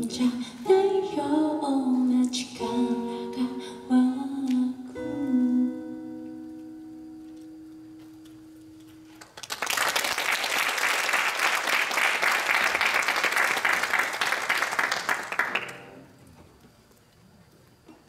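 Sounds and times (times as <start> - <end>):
acoustic guitar note ringing: 4.9 - 9.2
audience applause: 9.1 - 15.9.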